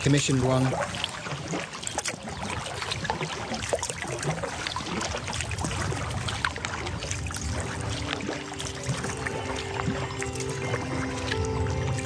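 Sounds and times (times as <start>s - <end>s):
paddle splashing in water: 0.0s - 12.0s
music: 5.7s - 12.0s.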